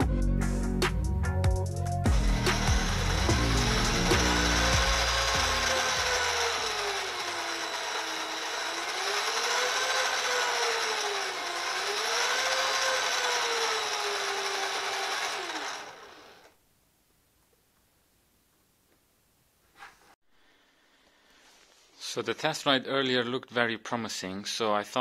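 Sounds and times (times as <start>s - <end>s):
electric motors whining: 2.1s - 16.5s.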